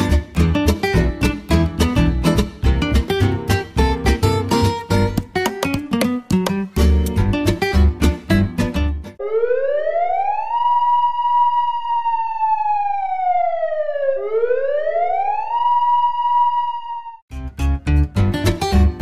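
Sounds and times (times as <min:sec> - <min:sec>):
strummed acoustic guitar music: 0:00.0 - 0:09.2, 0:17.3 - 0:19.0
siren wail: 0:09.2 - 0:17.3.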